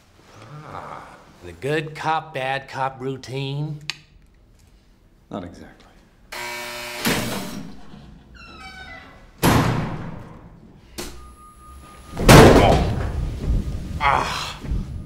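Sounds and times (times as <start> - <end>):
heavy slams and thuds: 12.1 - 14.0.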